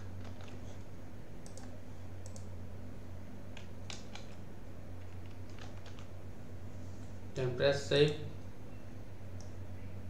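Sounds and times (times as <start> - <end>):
keyboard and mouse clicks: 0.2 - 0.8, 1.4 - 2.5, 3.5 - 4.4, 5.0 - 6.1.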